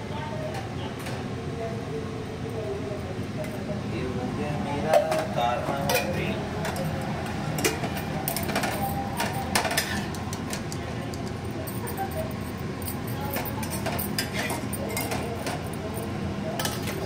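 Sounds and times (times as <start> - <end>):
low background hum: 0.0 - 17.0
metal utensils clinking: 4.9 - 7.0, 7.6 - 17.0.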